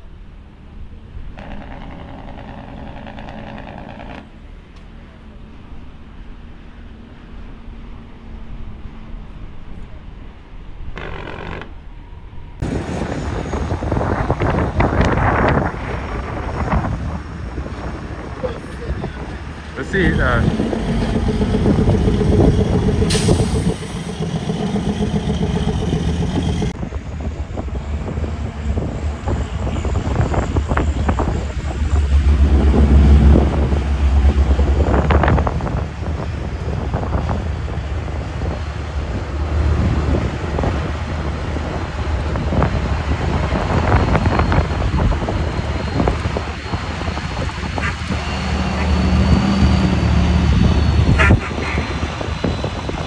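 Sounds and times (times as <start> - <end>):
knocks and rattles: 1.4 - 4.2
wind buffeting microphone: 12.5 - 53.0
diesel truck engine running: 12.6 - 53.0.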